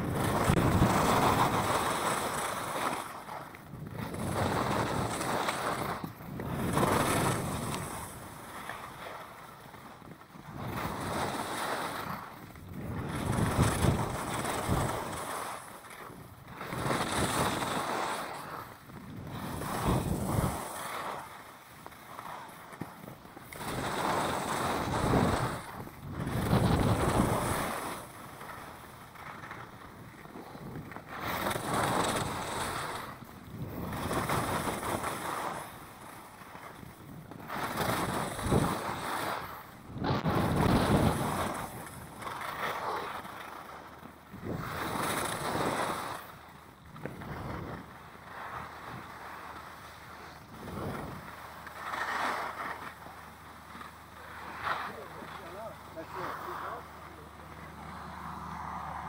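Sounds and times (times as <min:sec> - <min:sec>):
wind on microphone: 0:00.0 - 0:09.0, 0:10.0 - 0:15.6, 0:16.2 - 0:21.1, 0:23.5 - 0:36.0, 0:36.8 - 0:43.3, 0:44.3 - 0:51.6
skis scraping on snow: 0:00.0 - 0:59.0.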